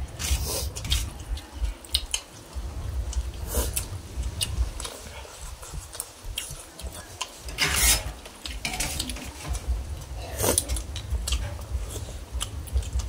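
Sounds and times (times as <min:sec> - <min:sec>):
metal spoons scraping metal bowl: 0:07.5 - 0:09.5.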